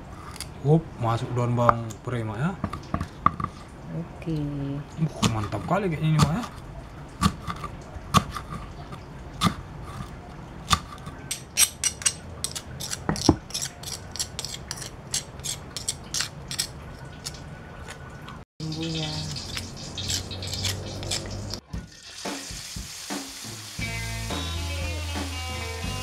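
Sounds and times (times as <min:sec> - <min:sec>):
knife chopping on wooden board: 0:05.2 - 0:06.5, 0:07.2 - 0:08.7
stone pestle grinding in mortar: 0:07.2 - 0:17.4, 0:19.2 - 0:21.6.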